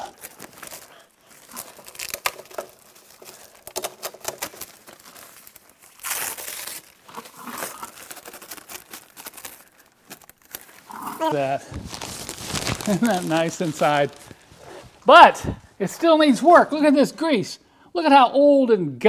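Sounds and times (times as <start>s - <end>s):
plastic sheet crinkling: 0.0s - 15.1s.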